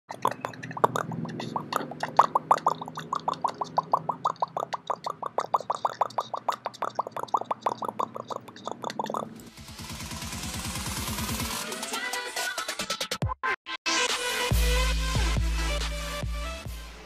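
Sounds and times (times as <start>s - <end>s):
fast staccato pulses: 0.1s - 11.6s.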